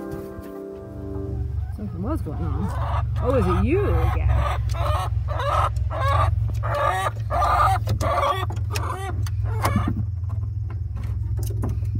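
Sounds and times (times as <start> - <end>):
hen clucking: 1.2 - 10.1.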